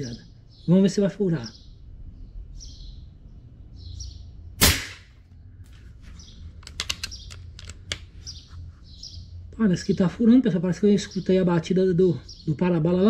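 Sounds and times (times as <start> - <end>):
birds chirping: 0.0 - 4.6, 5.3 - 13.0
air rifle shot: 4.6 - 5.2
quick clicks: 6.6 - 8.1.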